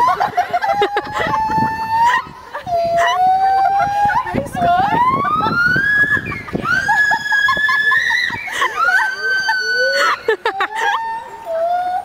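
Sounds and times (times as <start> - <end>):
gibbon whooping call: 0.0 - 12.0.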